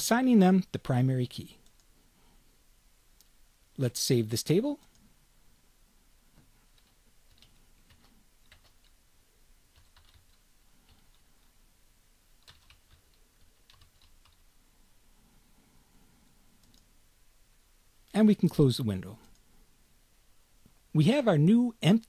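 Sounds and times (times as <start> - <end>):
faint keyboard typing: 1.5 - 2.0, 6.3 - 9.0, 9.7 - 11.6, 12.4 - 14.5, 16.2 - 17.0, 19.1 - 19.5.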